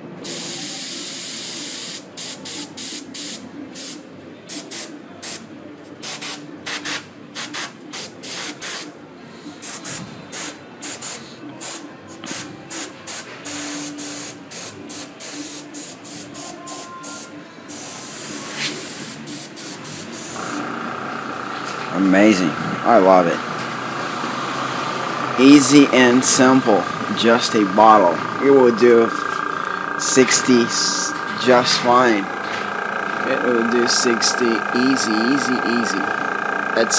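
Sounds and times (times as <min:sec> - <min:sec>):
airbrush hissing air: 0:13.8 - 0:20.8.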